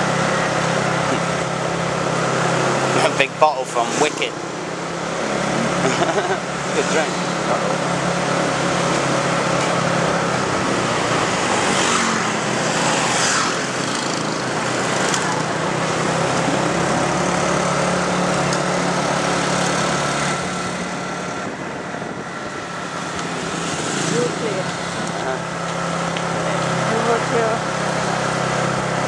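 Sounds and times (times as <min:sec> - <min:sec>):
motorbike engine running: 0:00.0 - 0:29.0
traffic passing: 0:00.0 - 0:29.0
wind noise on microphone: 0:20.4 - 0:23.5.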